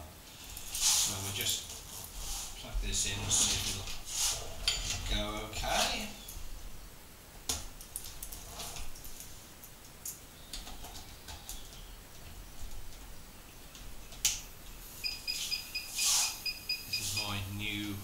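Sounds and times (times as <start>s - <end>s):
short high electronic beeps: 15.0s - 17.4s.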